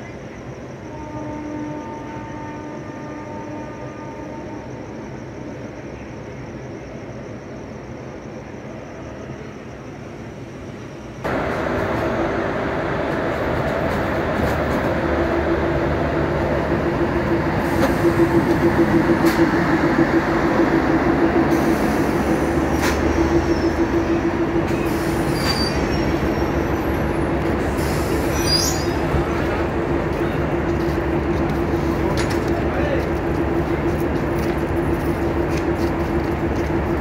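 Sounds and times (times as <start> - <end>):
train rumbling past: 0.0 - 37.0
train sharp clicks: 11.3 - 15.9, 16.6 - 28.3, 28.9 - 37.0
high squeal: 17.6 - 29.6.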